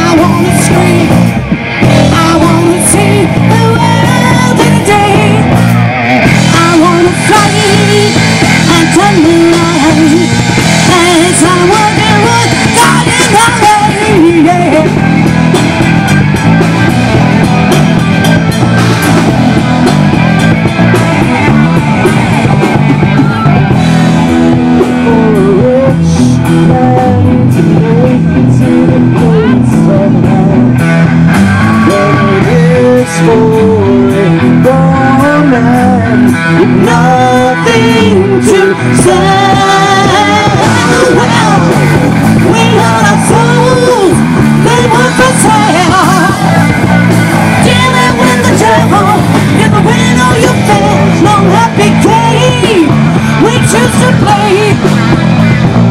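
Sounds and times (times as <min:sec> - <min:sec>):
woman singing: 0:00.0 - 0:01.3, 0:01.9 - 0:05.6, 0:06.2 - 0:15.3, 0:24.7 - 0:30.8, 0:31.8 - 0:46.9, 0:47.5 - 0:54.9
drums: 0:00.0 - 0:55.9
electric guitar: 0:00.0 - 0:55.9
keyboard: 0:00.0 - 0:55.9.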